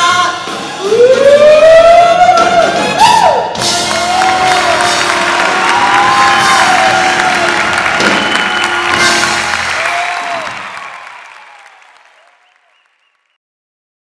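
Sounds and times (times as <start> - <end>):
cheering with whoops: 3.0 - 13.0
audience applauding: 3.6 - 13.4.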